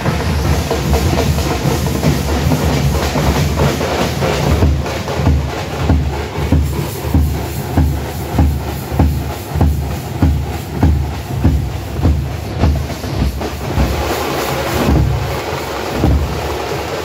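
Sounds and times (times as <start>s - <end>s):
frame drums beating: 0.0s - 17.0s.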